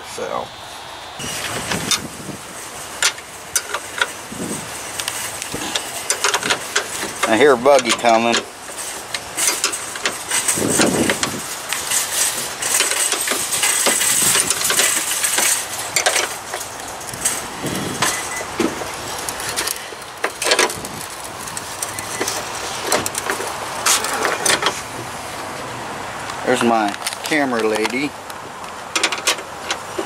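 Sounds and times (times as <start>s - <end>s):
wrenches clinking on metal bolt: 3.0s - 4.1s, 5.6s - 20.8s, 28.9s - 30.0s.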